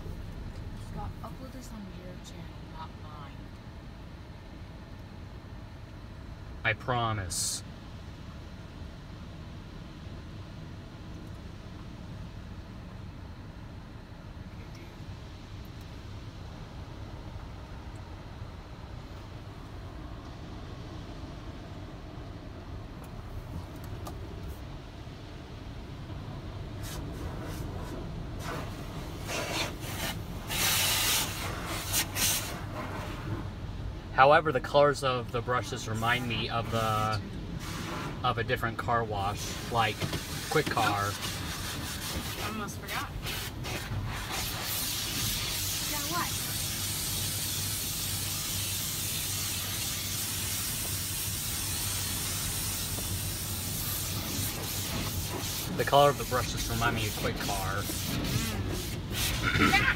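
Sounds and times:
low machinery hum: 0.0 - 59.9
water spray bursts: 26.8 - 33.1, 36.0 - 38.3, 39.2 - 59.9
brushes scrubbing car: 26.8 - 33.4, 35.8 - 38.2, 39.2 - 59.9.

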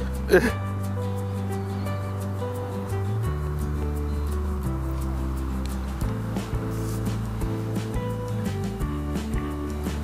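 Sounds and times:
background music with bass line: 0.0 - 10.0.

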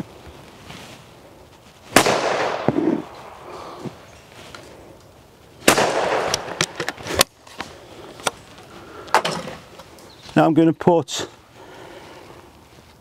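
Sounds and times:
shotgun shots: 2.0 - 3.4, 5.6 - 6.8.

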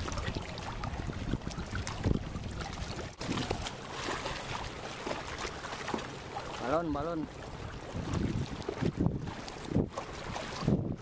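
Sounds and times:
wind on microphone: 0.0 - 3.6, 7.6 - 11.0
sea water slapping against concrete: 0.0 - 11.0.

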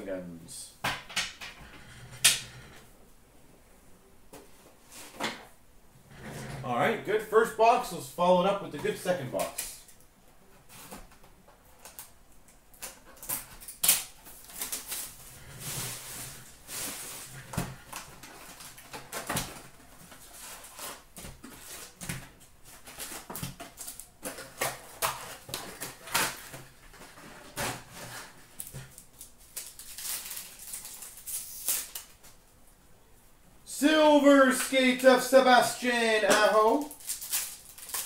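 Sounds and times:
foil packs rustling: 12.8 - 32.3, 34.3 - 38.0
card box crinkling and tearing: 27.6 - 32.1, 35.8 - 38.0.

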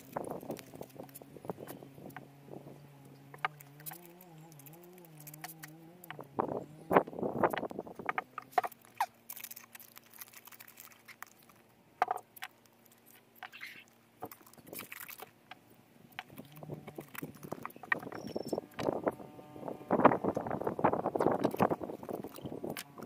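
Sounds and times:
masking tape ripping off roll: 3.5 - 6.2.

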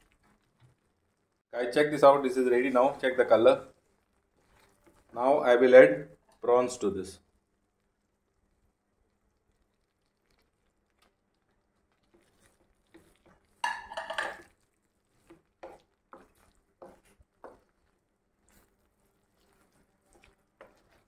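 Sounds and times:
spatula scraping a pan: 4.4 - 5.1, 11.8 - 21.0.

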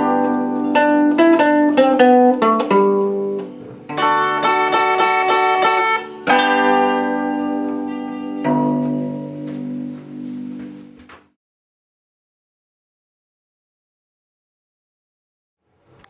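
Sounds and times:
plucked zither melody: 0.0 - 11.0.

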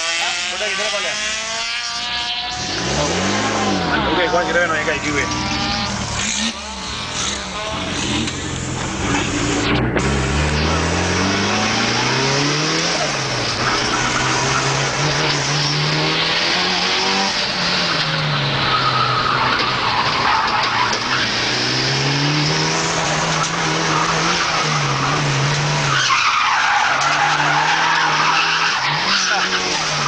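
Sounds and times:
loud road noise: 0.0 - 30.0
race car engine revving: 0.0 - 30.0
tyres squealing: 22.9 - 30.0.

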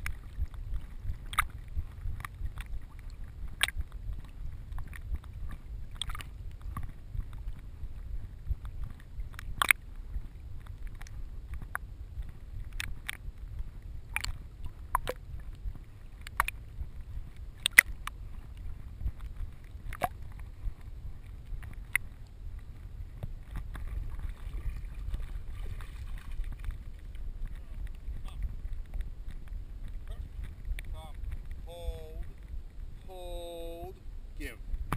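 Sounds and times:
water slaps: 0.0 - 6.9, 17.6 - 18.1
muffled rumble of water: 0.0 - 34.9.

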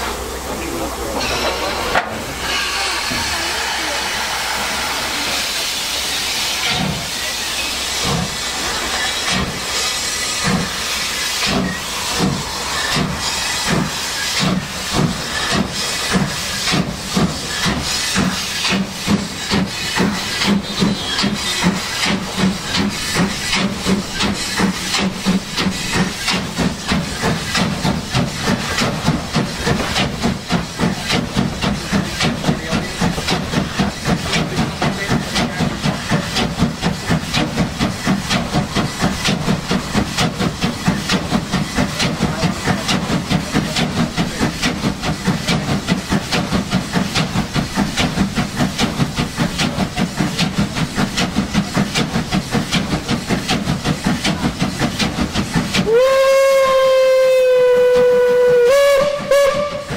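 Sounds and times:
steam hissing: 0.0 - 59.9
steam locomotive chuffing: 0.0 - 59.9.

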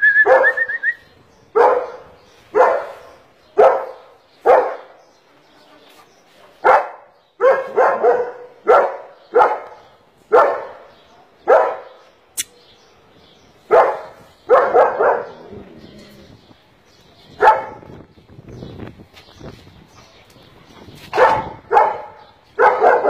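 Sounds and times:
dog barking: 0.2 - 0.6, 1.6 - 4.9, 6.6 - 12.0, 13.7 - 15.4, 17.4 - 17.9, 21.2 - 23.0
sharp click: 12.4 - 12.6.

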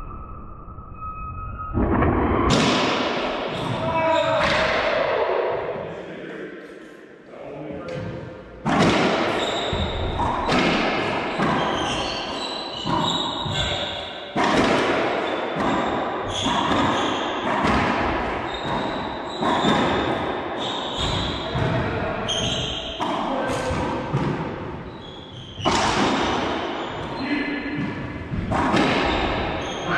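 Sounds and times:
sneakers squeaking on hardwood: 9.3 - 14.0, 15.2 - 17.6, 18.4 - 29.9.

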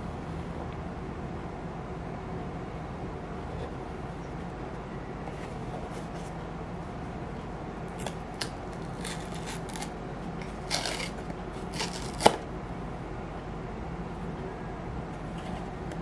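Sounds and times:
cardboard scratching and rustling: 5.3 - 6.4, 8.8 - 12.4
cardboard tearing: 8.0 - 12.4.

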